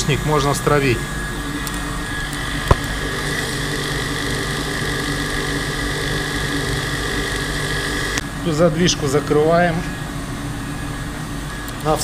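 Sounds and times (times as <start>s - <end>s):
water pump motor hum: 1.3s - 8.3s.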